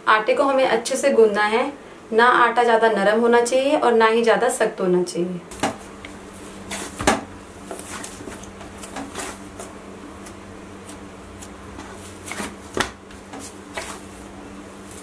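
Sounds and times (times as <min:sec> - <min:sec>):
dough thump: 0:05.5 - 0:05.9, 0:06.6 - 0:14.3
hands kneading dough on metal: 0:05.5 - 0:15.0.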